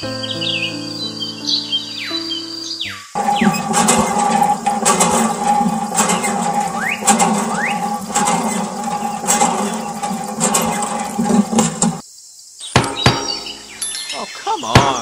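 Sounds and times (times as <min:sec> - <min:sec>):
short rising squeaks: 0:03.2 - 0:12.0
steady hum: 0:03.2 - 0:12.0.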